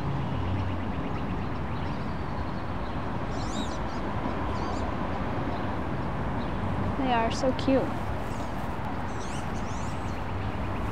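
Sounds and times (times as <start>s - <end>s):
ducks squeaky calls: 8.2s - 10.9s.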